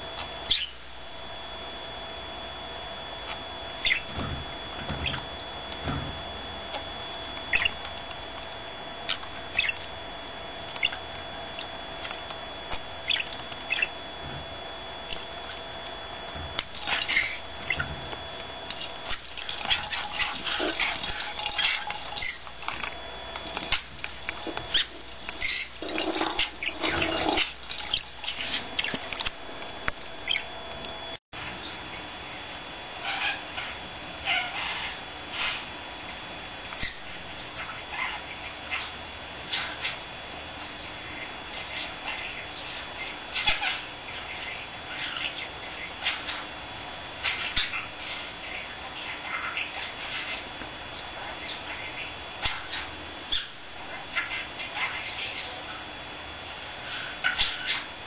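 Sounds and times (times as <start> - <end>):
budgerigar chirping: 0.5 - 0.8, 3.8 - 4.2, 7.5 - 7.8, 9.1 - 9.8, 13.0 - 14.0, 30.2 - 30.5
budgerigar chattering: 9.5 - 9.8.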